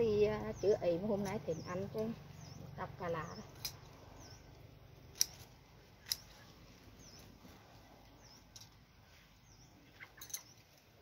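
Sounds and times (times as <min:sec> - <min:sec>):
scissors snipping stems: 0:03.2 - 0:04.1, 0:05.0 - 0:07.4.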